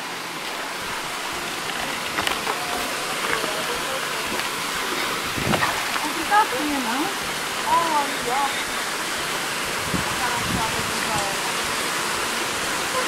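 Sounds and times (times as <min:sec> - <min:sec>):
water rushing over rocks: 0:00.0 - 0:13.0
footsteps on rock: 0:01.7 - 0:06.1.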